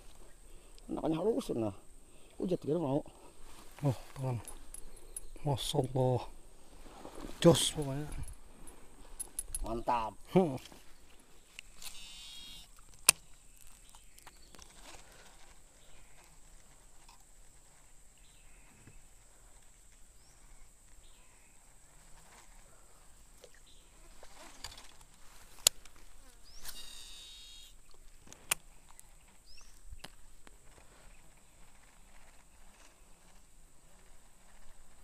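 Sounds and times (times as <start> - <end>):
high insect drone: 0.0 - 13.4, 26.0 - 27.8
fishing reel whirring cast: 11.8 - 12.7.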